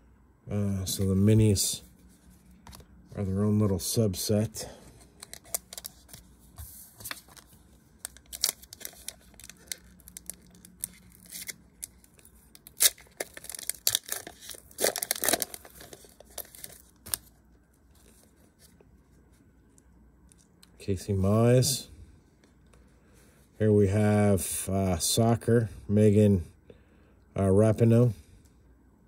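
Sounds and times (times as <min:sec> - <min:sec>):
foil wrapper tearing and crinkling: 0:07.2 - 0:17.3.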